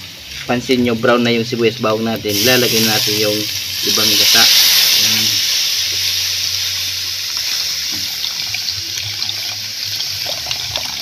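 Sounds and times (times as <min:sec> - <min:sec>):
liquid pouring into hot pan: 0:02.3 - 0:11.0.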